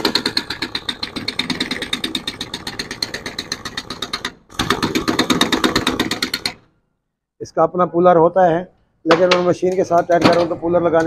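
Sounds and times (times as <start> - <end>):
pneumatic impact wrench rattling: 0.0 - 6.7.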